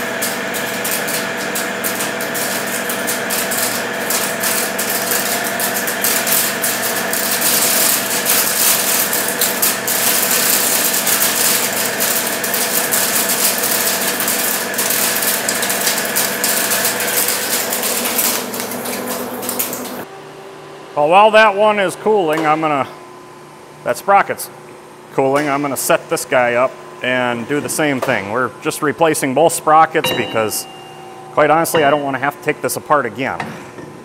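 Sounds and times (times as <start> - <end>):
metal cutting crackle: 0.0 - 20.0.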